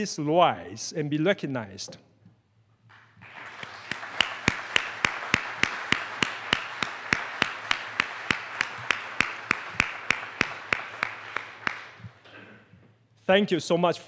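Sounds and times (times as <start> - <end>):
audience applauding: 2.9 - 12.2
close single person clapping: 2.9 - 12.2.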